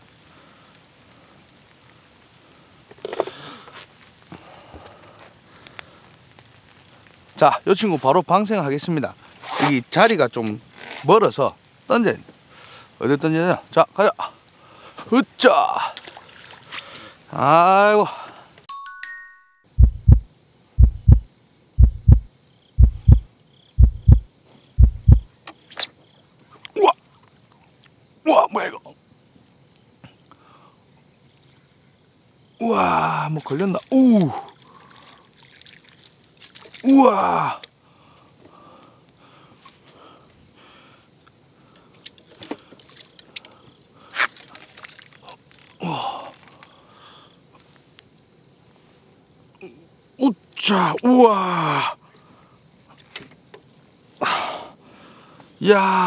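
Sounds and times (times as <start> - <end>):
crickets chirping: 0.0 - 56.0
faint high tones: 18.7 - 19.7
heartbeat thumps: 19.8 - 25.3.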